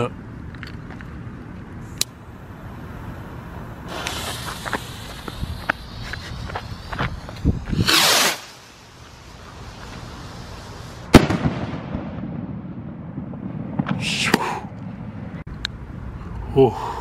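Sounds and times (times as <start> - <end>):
firework rocket whooshing up: 3.8 - 12.3
short hiss: 3.9 - 11.1
firework bang: 7.7 - 8.7, 11.1 - 14.5.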